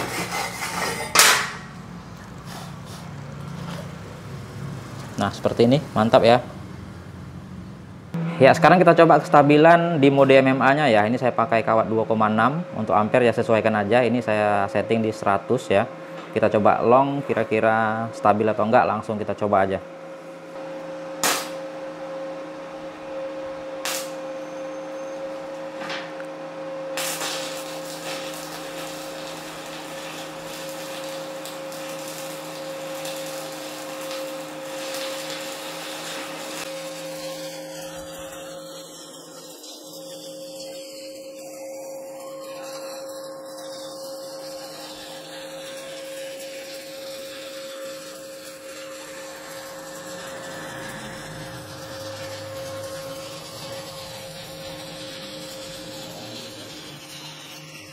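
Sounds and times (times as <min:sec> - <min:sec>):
welding arc hiss and crackle: 0:00.0 - 0:06.4, 0:20.5 - 0:21.8, 0:23.8 - 0:24.3, 0:26.9 - 0:57.9
steady electrical hum: 0:00.0 - 0:57.9.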